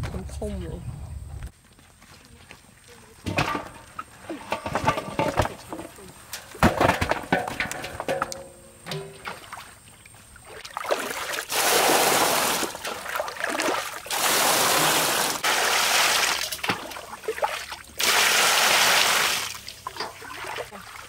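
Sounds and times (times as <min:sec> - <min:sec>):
water pouring: 0:10.4 - 0:21.0.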